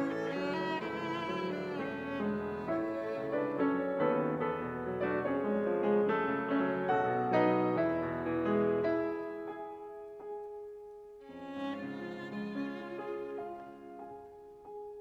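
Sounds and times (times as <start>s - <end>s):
violin bowing with vibrato: 0.0s - 3.6s, 11.3s - 13.8s
piano accompaniment: 0.0s - 15.0s.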